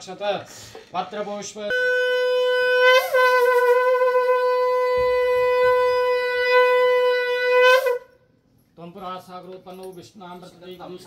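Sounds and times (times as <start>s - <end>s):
conch shell blown: 1.7s - 8.3s.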